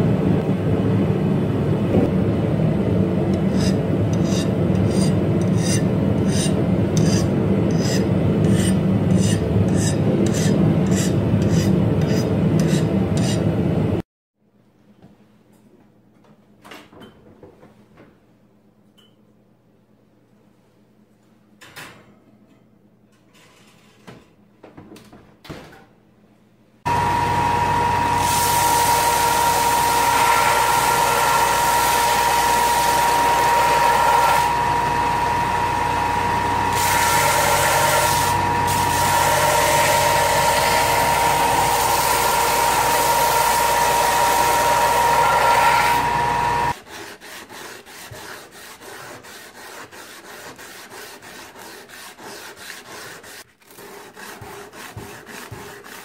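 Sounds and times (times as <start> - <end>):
hand sanding strokes: 3.5 - 13.4, 46.7 - 56.0
belt grinder whining: 26.9 - 46.8.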